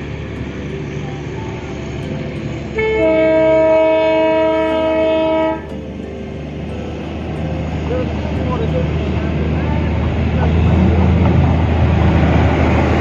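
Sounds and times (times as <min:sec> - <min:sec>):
locomotive engine running: 0:00.0 - 0:13.0
locomotive horn blast: 0:02.7 - 0:05.8.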